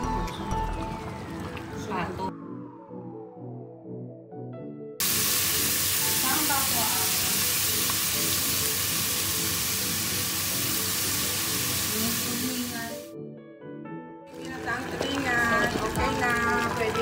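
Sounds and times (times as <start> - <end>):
background music: 0.0 - 17.0
loud sizzling hiss: 5.0 - 13.1.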